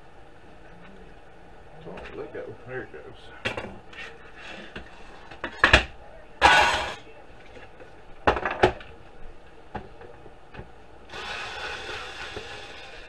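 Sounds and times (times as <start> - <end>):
metal parts clanking on wood: 6.4 - 7.0
cordless screwdriver whirring: 11.1 - 13.0.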